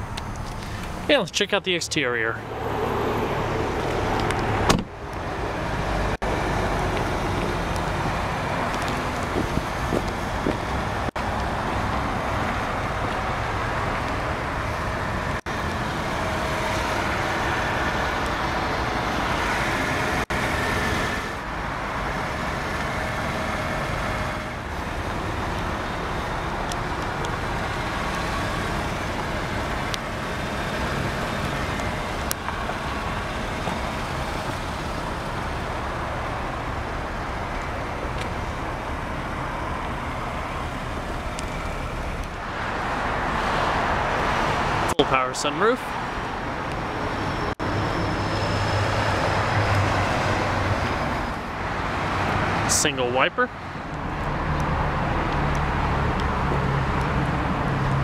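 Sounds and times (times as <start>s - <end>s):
car engine idling: 0.0s - 2.6s, 3.2s - 43.4s
road traffic noise: 0.0s - 58.0s.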